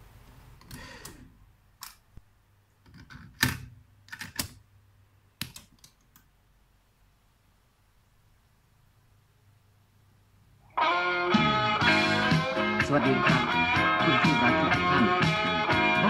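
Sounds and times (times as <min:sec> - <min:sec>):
faint steady hum: 0:00.0 - 0:11.7.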